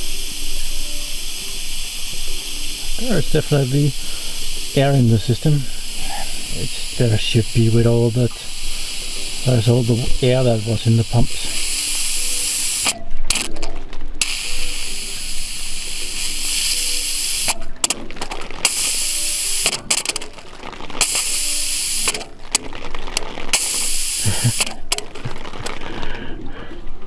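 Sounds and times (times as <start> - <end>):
air and water hissing from valve: 0.0 - 13.4, 14.2 - 18.0, 18.6 - 20.2, 21.0 - 22.3, 23.5 - 25.0.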